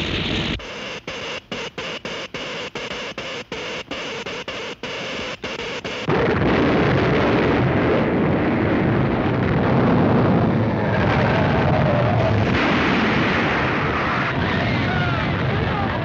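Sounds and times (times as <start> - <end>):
cartoon electric crackle: 0.0 - 15.0
explosive rumble of collapse: 6.1 - 16.0.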